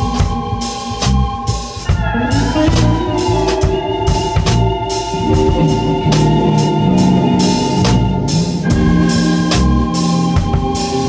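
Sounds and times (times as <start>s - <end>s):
bass line: 0.0s - 11.0s
drum kit: 0.0s - 11.0s
organ chords: 0.0s - 11.0s.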